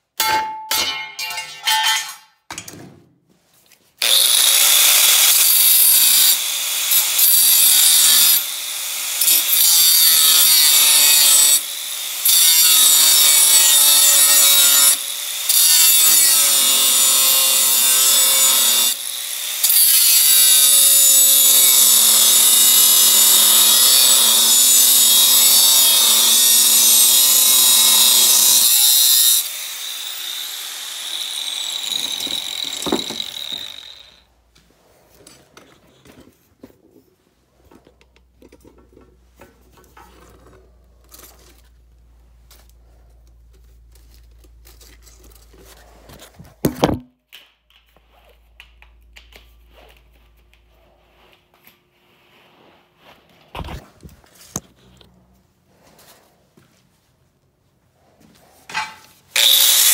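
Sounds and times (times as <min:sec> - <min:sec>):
angle grinder cutting steel: 0:04.0 - 0:34.3, 0:58.7 - 0:59.9.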